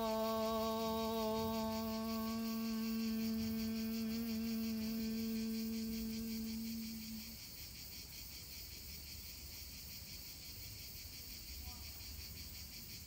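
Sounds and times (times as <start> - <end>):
woman humming: 0.0 - 7.4
insects chirring: 0.0 - 13.0.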